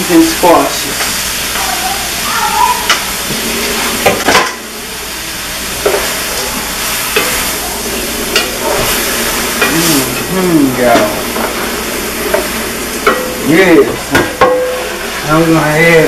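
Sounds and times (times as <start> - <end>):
vegetables sizzling in a pot: 0.0 - 16.0
wooden spoon knocking on pot: 14.1 - 14.8.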